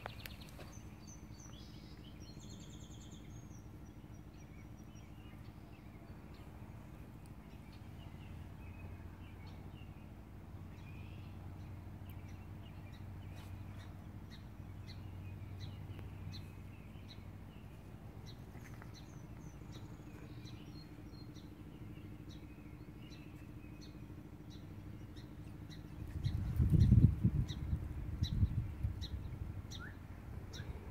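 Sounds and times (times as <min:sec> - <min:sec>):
low steady hum: 0:00.0 - 0:30.9
small bird chirping: 0:00.0 - 0:30.9
higher bird calls: 0:12.1 - 0:30.9.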